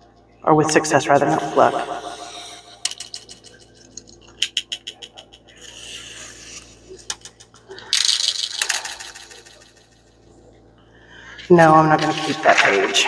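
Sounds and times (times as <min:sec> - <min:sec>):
paper strip rustling: 0:02.0 - 0:09.6
craft knife slicing paper: 0:05.6 - 0:07.0.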